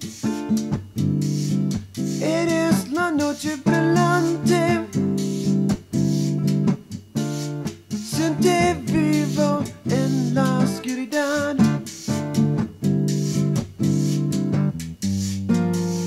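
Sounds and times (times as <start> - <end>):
acoustic guitar: 0.0 - 16.0
person singing: 2.2 - 5.5, 8.0 - 12.0.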